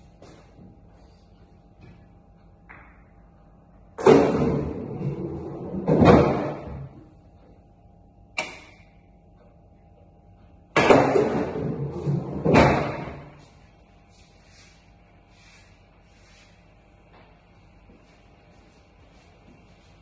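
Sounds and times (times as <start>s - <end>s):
balls rumbling through return channel: 3.9s - 7.0s, 10.7s - 13.4s.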